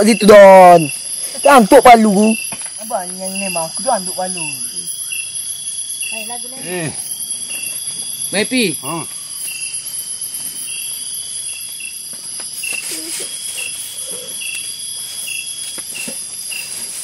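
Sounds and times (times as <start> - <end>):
insects trilling: 0.0 - 17.0
short insect chirp: 0.0 - 17.0.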